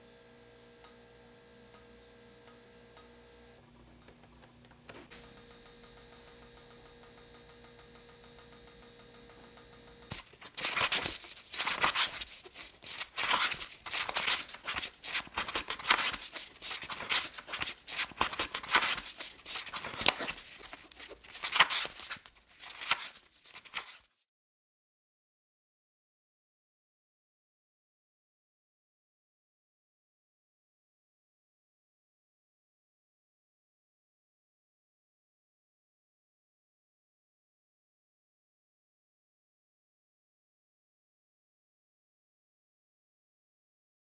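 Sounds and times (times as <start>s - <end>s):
book pages flipping: 10.1s - 24.2s.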